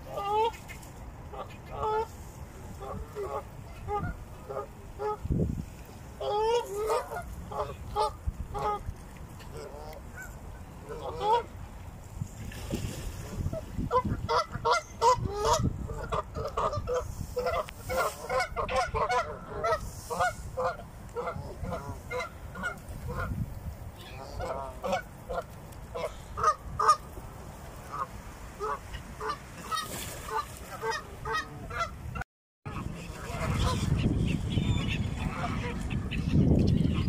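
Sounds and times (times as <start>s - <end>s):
geese honking: 13.9s - 23.3s, 24.1s - 27.0s, 27.9s - 32.0s.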